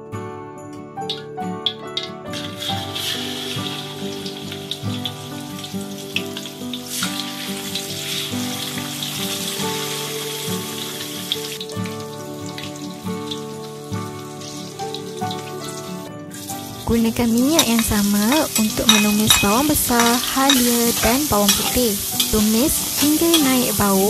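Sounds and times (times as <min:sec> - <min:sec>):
background music: 0:00.0 - 0:24.0
fish sizzling in oil: 0:02.3 - 0:24.0.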